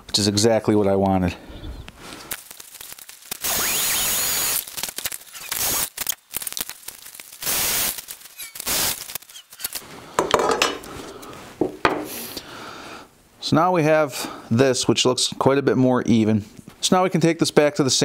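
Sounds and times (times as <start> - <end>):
rushing hiss: 7.4 - 9.5.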